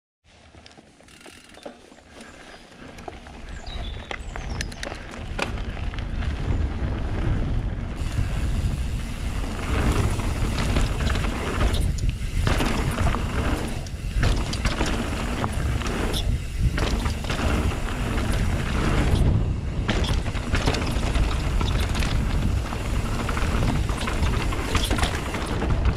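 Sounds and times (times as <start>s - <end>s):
bike clicking and rattling: 0.3s - 25.9s
tyres on loose dirt: 0.3s - 25.9s
wind rumbling on microphone: 2.9s - 25.9s.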